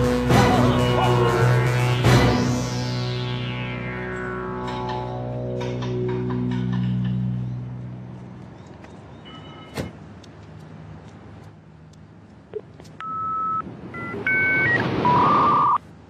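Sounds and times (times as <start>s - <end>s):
music: 0.0s - 7.7s
two-note tones: 0.0s - 8.0s.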